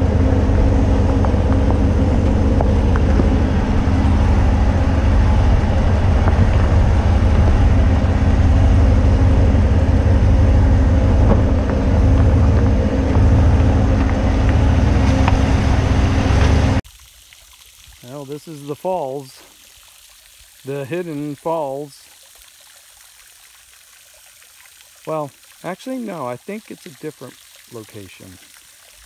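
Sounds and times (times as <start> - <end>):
pickup truck engine rumbling: 0.0 - 16.8.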